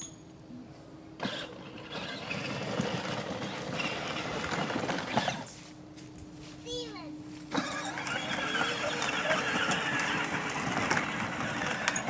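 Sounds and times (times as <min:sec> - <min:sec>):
electric motor drive: 0:01.2 - 0:05.6, 0:07.5 - 0:12.0
toy vehicle rolling through dry leaves: 0:01.2 - 0:05.6, 0:07.6 - 0:12.0.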